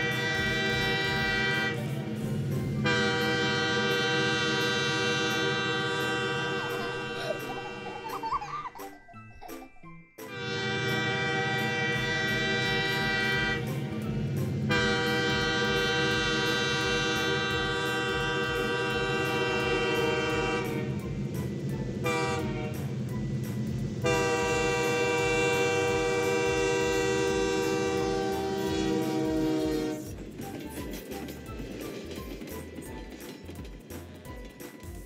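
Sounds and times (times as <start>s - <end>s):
train horn blowing: 0.0s - 2.2s, 2.8s - 8.0s, 10.3s - 14.0s, 14.6s - 21.1s, 22.0s - 23.0s, 24.0s - 30.2s
low rumble of running train: 0.0s - 9.3s, 9.9s - 35.0s.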